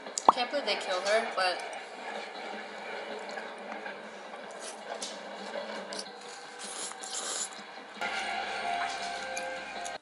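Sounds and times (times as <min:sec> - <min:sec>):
wet chewing and slurping noodles: 0:04.5 - 0:07.7.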